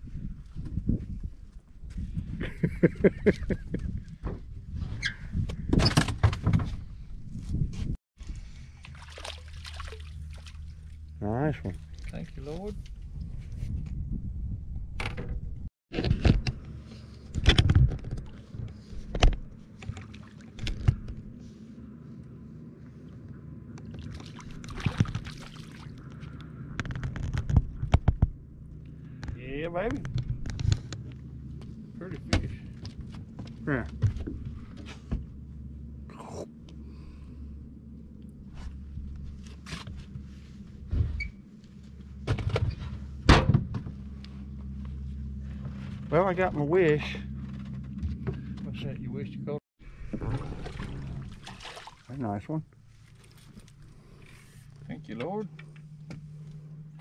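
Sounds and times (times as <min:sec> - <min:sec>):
low hum: 0:06.6 - 0:57.0.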